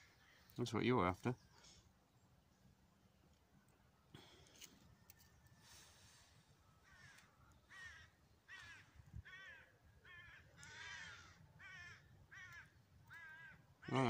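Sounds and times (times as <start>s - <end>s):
distant crow cawing: 6.8s - 14.0s.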